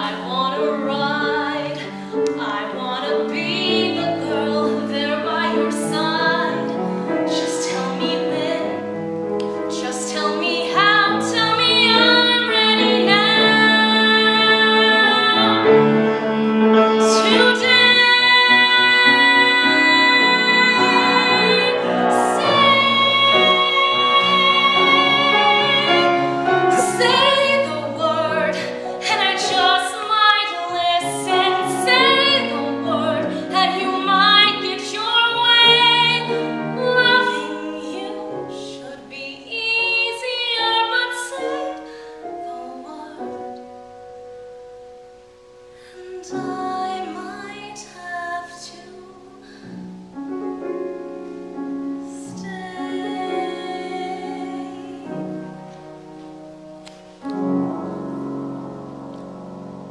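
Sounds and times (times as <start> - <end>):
woman singing solo: 17.0 - 43.5.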